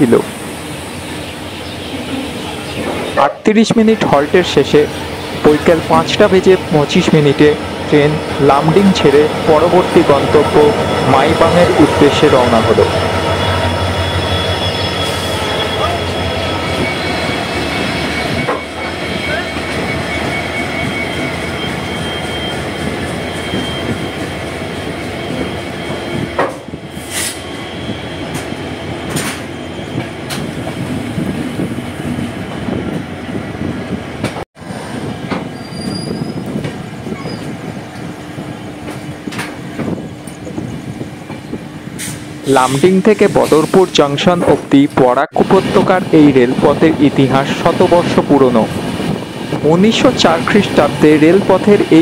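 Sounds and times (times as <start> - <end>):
train wheels rumbling on rail: 0.0 - 52.0
faint wheel squeal: 13.4 - 24.1, 35.5 - 36.5, 37.1 - 37.5.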